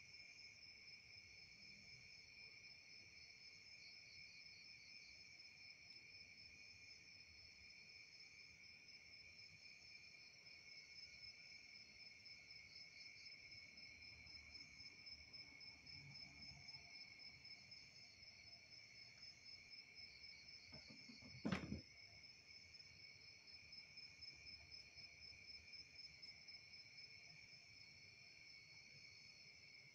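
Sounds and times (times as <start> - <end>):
sharp thump: 20.8 - 21.8.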